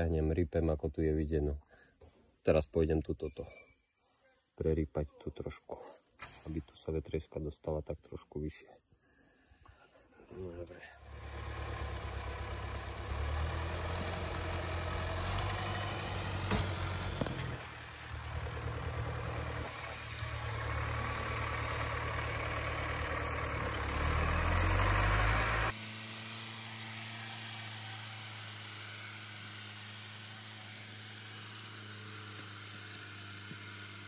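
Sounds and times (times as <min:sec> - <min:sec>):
diesel engine working hard: 0:11.1 - 0:34.0.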